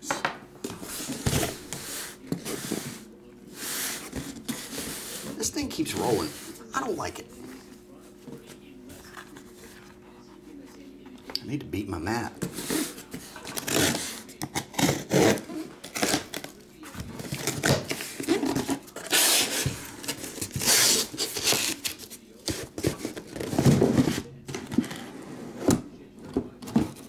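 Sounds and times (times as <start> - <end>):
cardboard scraping and rustling: 0.7 - 6.7, 12.4 - 25.9
cardboard ripping: 12.5 - 16.6, 17.2 - 24.2.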